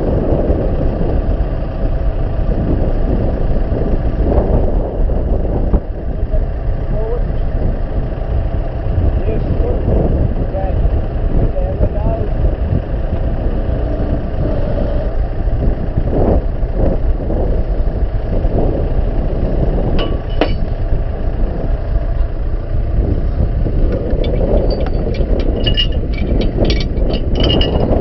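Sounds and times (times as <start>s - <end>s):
tractor engine running: 0.0s - 28.0s
light metallic clinks: 20.0s - 20.7s, 24.2s - 28.0s.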